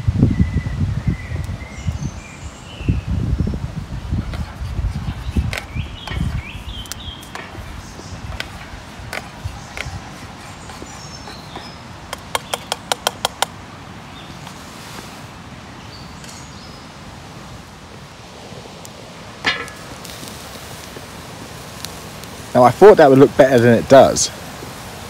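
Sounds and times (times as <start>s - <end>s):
birds chirping: 0.2s - 14.6s, 15.4s - 17.8s, 18.9s - 25.0s
sharp taps on pot: 11.4s - 13.5s, 19.4s - 20.1s.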